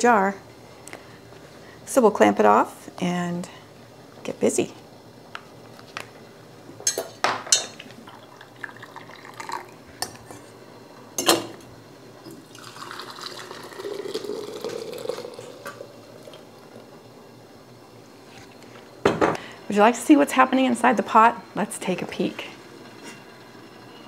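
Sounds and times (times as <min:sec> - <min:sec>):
liquid pouring into jar: 0:08.1 - 0:09.8, 0:12.3 - 0:16.4.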